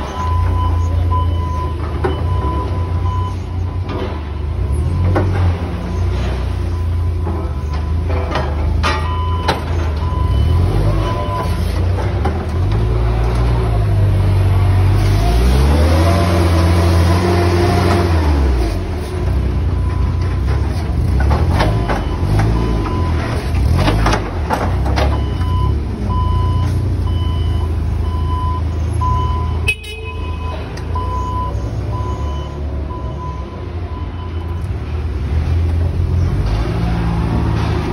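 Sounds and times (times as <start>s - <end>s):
reversing alarm beeps: 0.0s - 8.1s, 8.9s - 11.7s, 21.6s - 23.4s, 25.1s - 34.7s.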